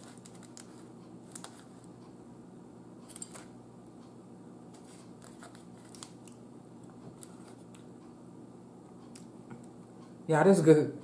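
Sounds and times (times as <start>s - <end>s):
handling flaky food: 0.0s - 1.8s
small crackles and clicks: 0.0s - 1.9s
faint steady hum: 0.0s - 11.0s.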